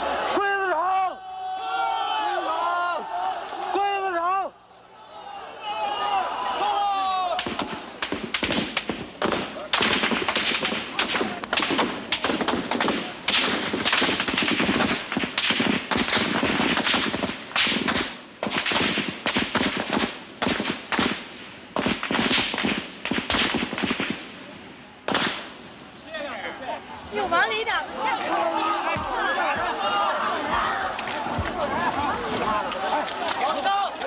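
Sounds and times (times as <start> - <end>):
rifle gunfire: 7.4 - 24.3, 25.1 - 25.5.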